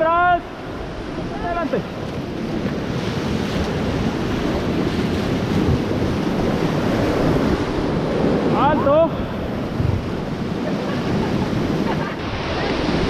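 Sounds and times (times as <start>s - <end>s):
whitewater rapids rushing: 0.0s - 13.0s
wind buffeting microphone: 0.0s - 13.0s.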